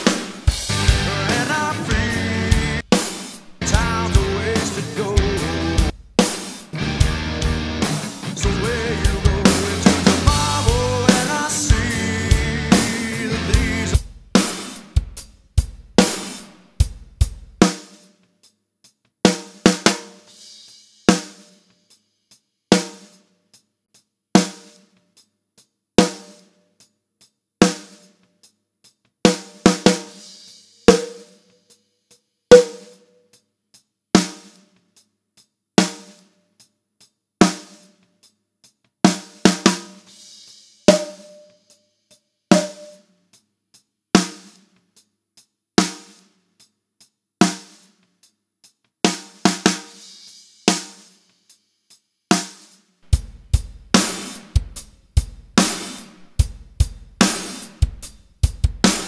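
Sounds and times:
short ringing note: 0:30.9 - 0:31.4, 0:32.5 - 0:33.1, 0:40.9 - 0:41.6, 0:42.6 - 0:43.0
snare drum hits: 0:30.9 - 0:31.4, 0:32.5 - 0:33.0, 0:40.9 - 0:41.5, 0:42.5 - 0:43.0
faint hi-hat ticks: 0:32.9 - 0:39.0, 0:42.9 - 0:49.0, 0:49.9 - 0:52.9.

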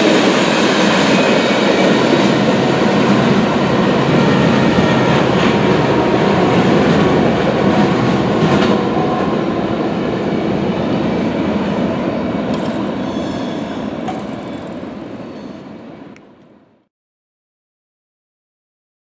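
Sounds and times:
train wheels clickety-clack: 0:00.0 - 0:09.4, 0:12.4 - 0:15.6.

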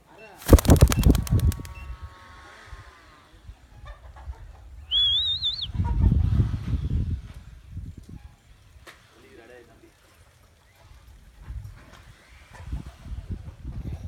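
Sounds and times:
wind buffeting microphone: 0:00.5 - 0:02.0.

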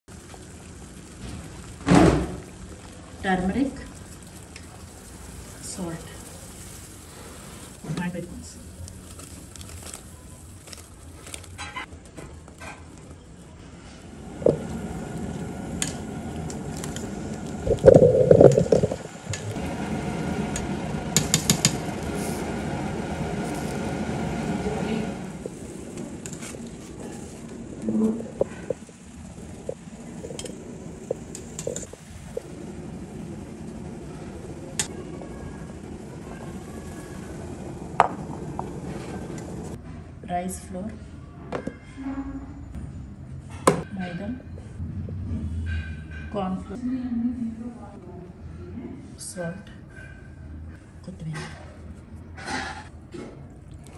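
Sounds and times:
pot bubbling hiss: 0:00.0 - 0:11.9, 0:13.8 - 0:39.8
steady low rush: 0:14.0 - 0:39.8.

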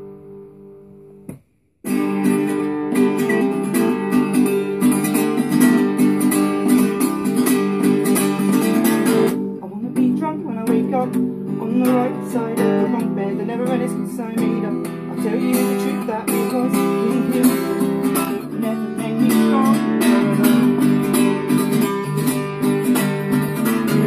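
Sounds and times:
acoustic guitar strumming: 0:00.0 - 0:24.0
man singing: 0:09.6 - 0:21.2.

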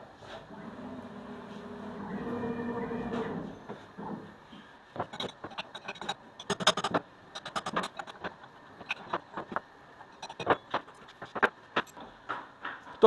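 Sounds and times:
spanners clinking on metal: 0:05.0 - 0:09.3, 0:10.1 - 0:12.0.

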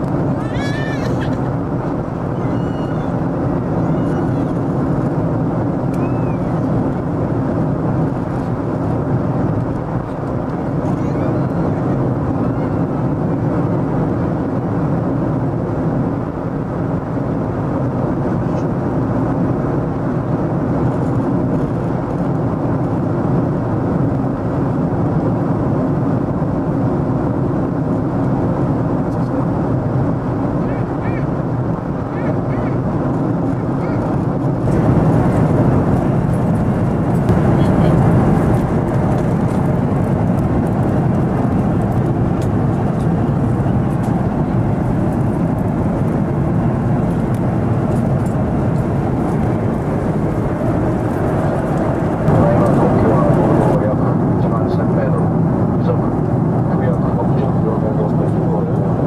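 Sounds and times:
airflow rush: 0:00.0 - 0:59.0
jet engine hum: 0:00.0 - 0:59.0.

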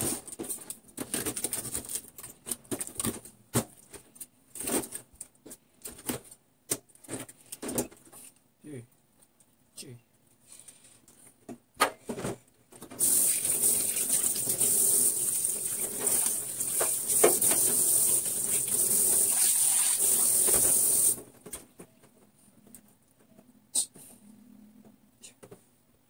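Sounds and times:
tap water running into sink: 0:13.0 - 0:21.2
utensil rinsed under water: 0:13.0 - 0:21.2.

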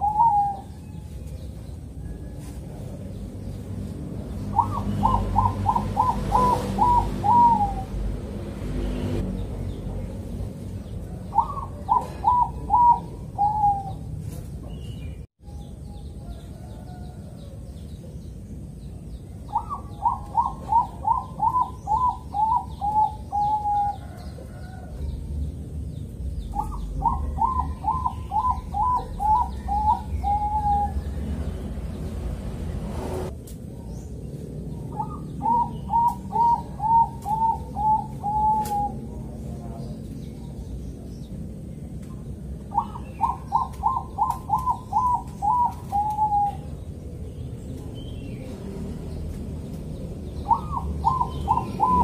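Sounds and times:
dove cooing: 0:00.0 - 0:01.1, 0:04.5 - 0:08.0, 0:11.0 - 0:14.4, 0:19.5 - 0:25.0, 0:26.5 - 0:31.5, 0:34.8 - 0:39.4, 0:42.7 - 0:46.9, 0:50.4 - 0:52.0.

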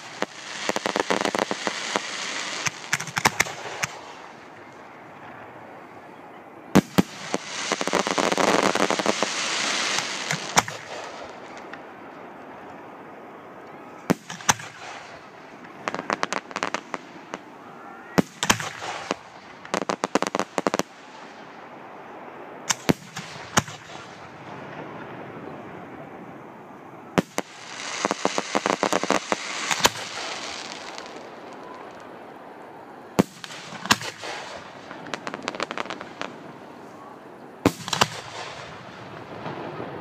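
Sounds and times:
crackling firework pops: 0:00.0 - 0:04.8, 0:06.8 - 0:11.9, 0:14.0 - 0:17.5, 0:18.2 - 0:21.0, 0:22.7 - 0:24.3, 0:27.2 - 0:32.1, 0:33.2 - 0:36.5, 0:37.6 - 0:40.0
firework shells bursting: 0:00.0 - 0:04.8, 0:06.8 - 0:11.9, 0:27.2 - 0:32.1.

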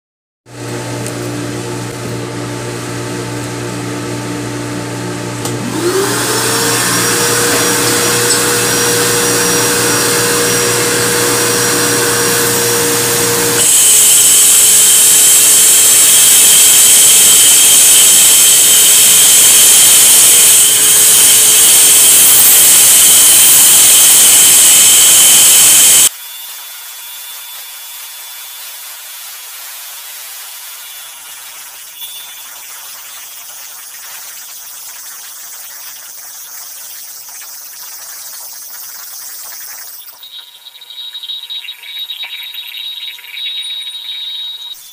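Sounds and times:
shop vacuum humming: 0:00.5 - 0:32.2
wall chaser motor whining: 0:00.6 - 0:28.6
blades cutting concrete: 0:05.4 - 0:26.2.

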